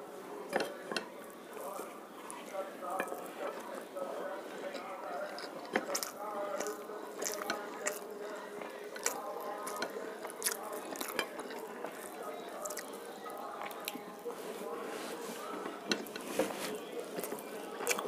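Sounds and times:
fingers working rice on plate: 0:00.5 - 0:18.0
wet chewing and lip-smacking: 0:04.6 - 0:14.3, 0:17.1 - 0:18.0.

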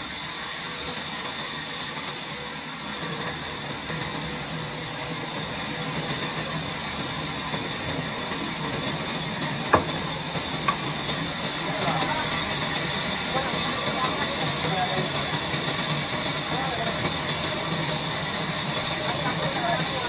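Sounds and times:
band saw blade hissing through wood: 0:00.0 - 0:20.0
sharp knock: 0:09.7 - 0:10.1.

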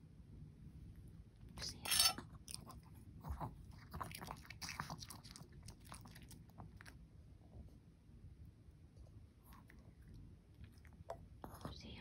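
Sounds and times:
dog chewing food: 0:02.2 - 0:07.0.

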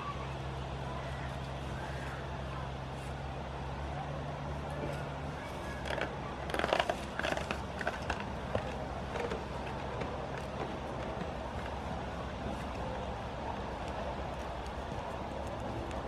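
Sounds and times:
goats crunching treats: 0:04.7 - 0:16.0.

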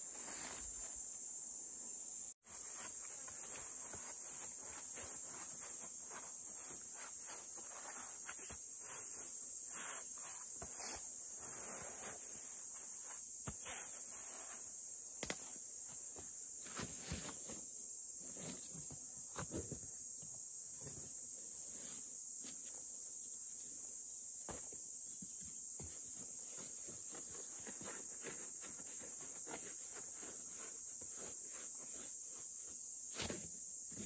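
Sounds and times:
leaves being swept: 0:00.0 - 0:01.0, 0:02.4 - 0:14.8.

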